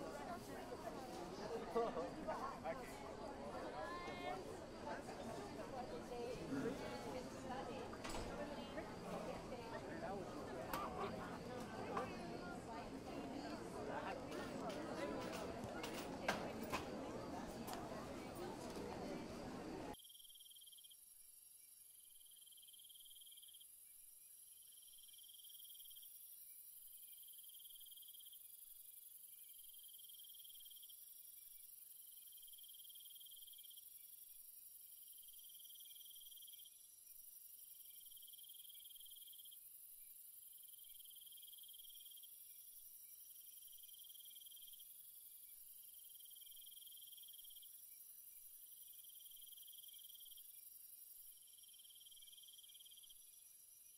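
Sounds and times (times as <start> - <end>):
insect trilling: 20.0 - 53.9.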